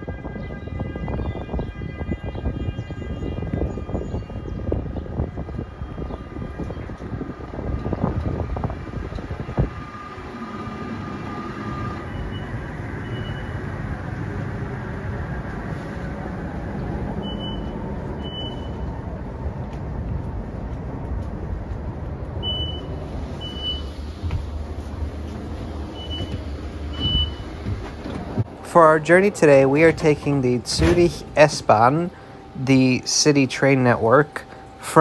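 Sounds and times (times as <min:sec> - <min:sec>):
standing train rumble: 0:03.6 - 0:35.0
train door warning beeps: 0:11.2 - 0:13.6, 0:17.2 - 0:19.0, 0:22.4 - 0:24.0, 0:25.9 - 0:27.6, 0:29.7 - 0:35.0.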